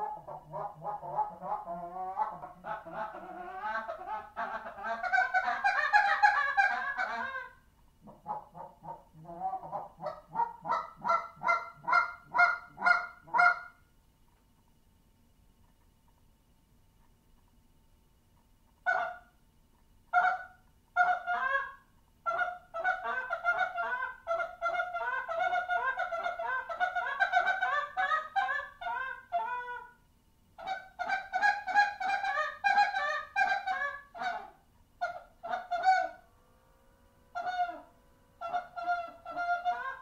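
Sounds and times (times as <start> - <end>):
goose call clucks: 0.0 - 13.8, 18.8 - 19.3, 20.1 - 30.0, 30.6 - 36.2, 37.3 - 40.0
goose call honks: 30.6 - 36.2, 37.3 - 40.0.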